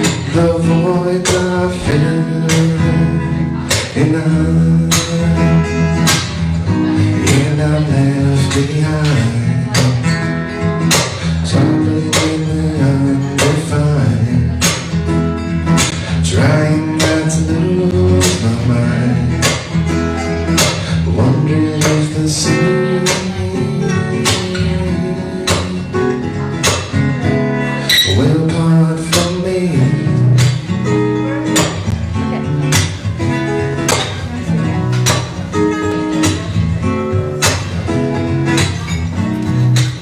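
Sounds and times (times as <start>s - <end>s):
acoustic guitar strumming: 0.0s - 40.0s
man singing: 0.0s - 40.0s.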